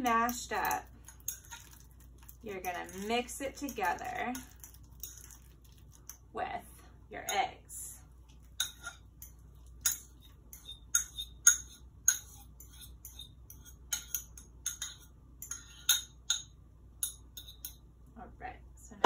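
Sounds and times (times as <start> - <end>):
fork scraping ceramic bowl: 0.6 - 6.1, 8.5 - 16.1.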